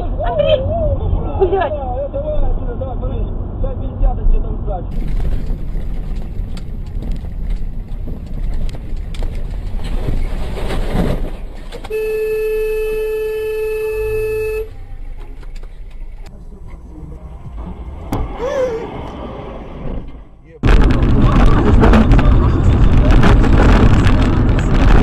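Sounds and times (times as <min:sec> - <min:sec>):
car road and engine noise: 0:00.0 - 0:25.0
car horn steady note: 0:11.9 - 0:14.8.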